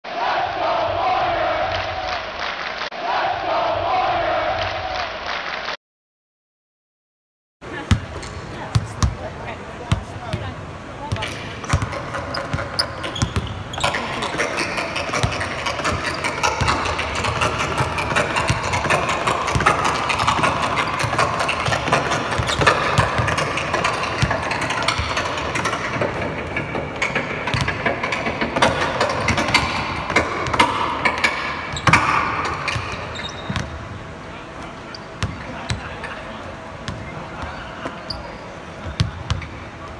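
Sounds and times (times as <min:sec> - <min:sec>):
arena background noise: 0:07.6 - 0:39.9
basketballs bouncing on hardwood: 0:09.9 - 0:33.8.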